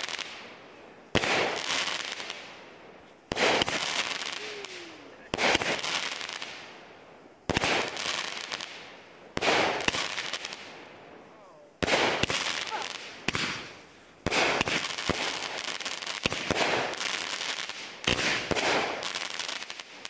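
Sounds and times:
firework bangs: 0:00.0 - 0:20.0
firework crackling: 0:00.0 - 0:20.0.

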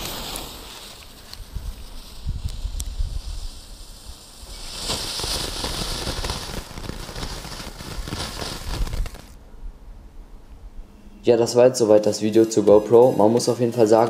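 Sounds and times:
ground firework hissing and crackling: 0:00.0 - 0:09.4.

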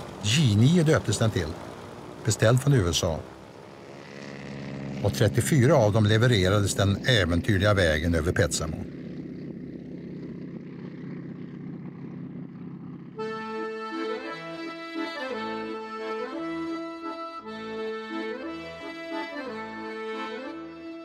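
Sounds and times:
propeller plane engines droning: 0:00.0 - 0:21.0
accordion playing slow tune: 0:03.2 - 0:05.2, 0:13.2 - 0:21.0.

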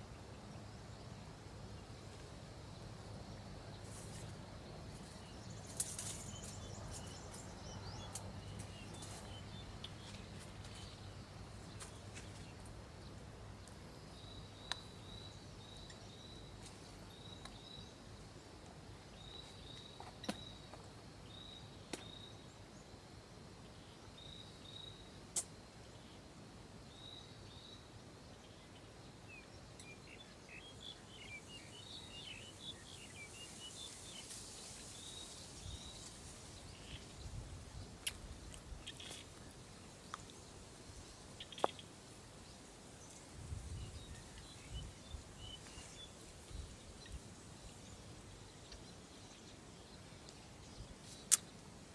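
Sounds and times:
bird chirping: 0:00.3 - 0:18.1, 0:26.9 - 0:40.3, 0:41.0 - 0:51.9
birds twittering: 0:38.7 - 0:40.2, 0:41.0 - 0:51.6.

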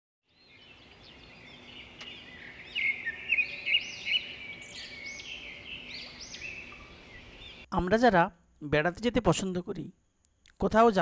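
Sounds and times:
birds chirping: 0:00.2 - 0:07.8.

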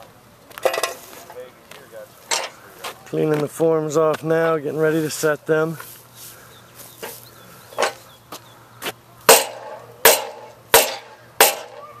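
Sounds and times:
hammer blows ringing: 0:09.3 - 0:12.0.

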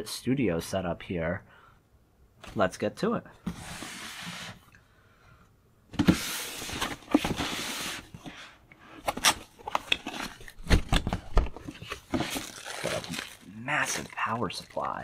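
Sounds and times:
box flaps clicking and knocking: 0:09.0 - 0:13.2.

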